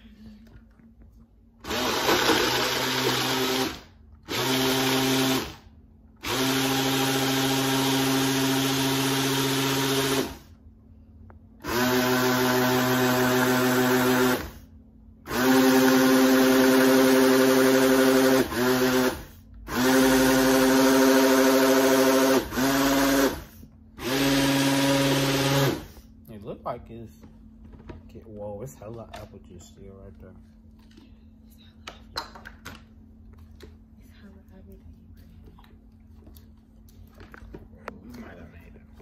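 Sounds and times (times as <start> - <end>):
blender motor running: 1.6 - 10.5, 11.6 - 26.0.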